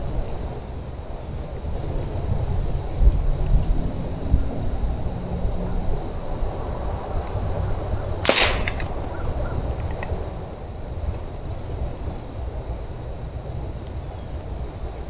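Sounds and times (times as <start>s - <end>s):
air rifle shot crack: 8.2s - 9.0s
faint ticks: 13.8s - 15.0s.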